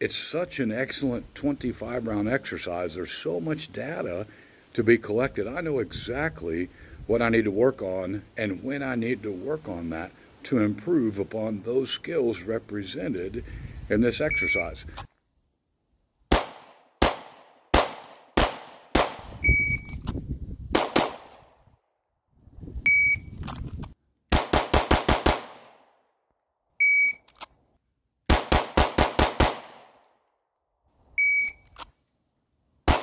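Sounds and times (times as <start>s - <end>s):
handgun shots: 16.3s - 19.3s, 20.8s - 21.4s, 24.3s - 25.8s, 28.3s - 30.0s
short high shot timer beeps: 19.4s - 20.0s, 22.9s - 23.3s, 26.8s - 27.2s, 31.2s - 31.6s.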